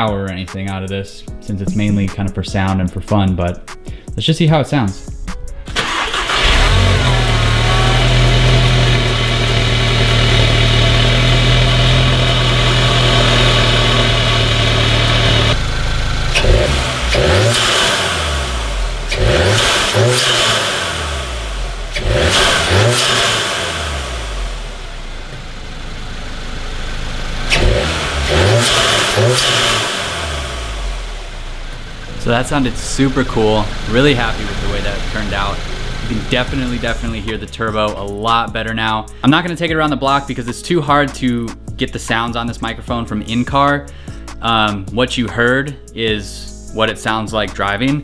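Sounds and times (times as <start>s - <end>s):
car engine idling and revving: 5.7s - 38.3s.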